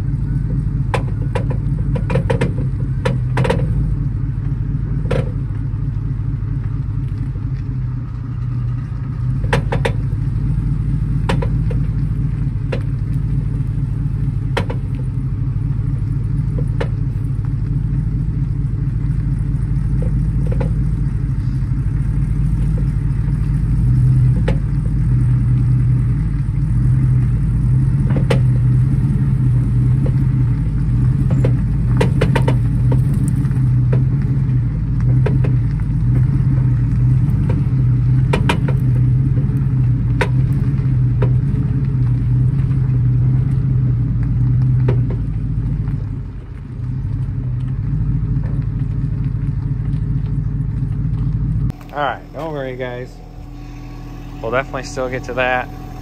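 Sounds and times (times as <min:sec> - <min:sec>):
pickup engine pulling under load: 0:00.0 - 0:56.0
trailer knocking and clattering: 0:00.4 - 0:05.6, 0:08.2 - 0:13.4, 0:14.4 - 0:15.2, 0:19.9 - 0:21.1, 0:27.9 - 0:28.9, 0:29.5 - 0:43.2.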